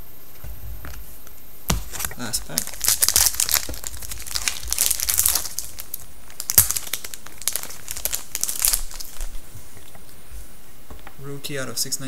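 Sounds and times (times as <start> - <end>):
foil wrapper tearing and crinkling: 1.8 - 9.4.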